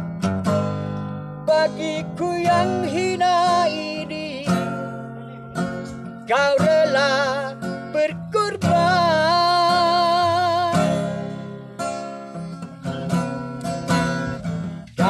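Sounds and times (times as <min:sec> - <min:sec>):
acoustic guitar picking and strumming: 0:00.0 - 0:15.0
man singing: 0:01.4 - 0:05.1, 0:05.8 - 0:11.3.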